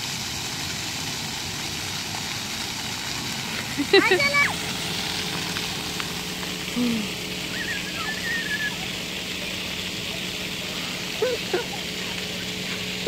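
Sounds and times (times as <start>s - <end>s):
low steady hum: 0.0s - 13.0s
outdoor hiss: 0.0s - 13.0s
young children crying out: 6.8s - 9.0s.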